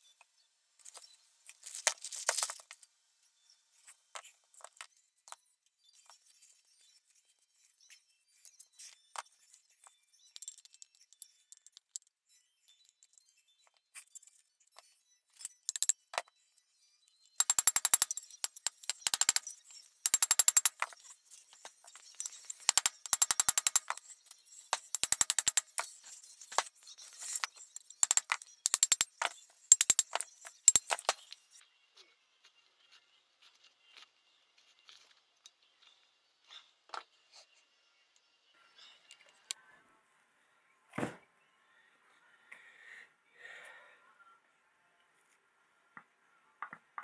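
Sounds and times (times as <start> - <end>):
socket ratchet clicking: 15.7 - 16.0, 17.4 - 19.4, 20.1 - 20.8, 22.7 - 23.9, 25.0 - 25.8, 27.9 - 30.9.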